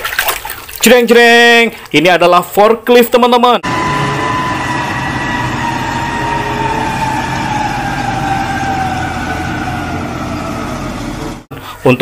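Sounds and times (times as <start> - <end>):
diesel forklift engine rumble: 3.6 - 11.5
high whine: 3.6 - 11.5.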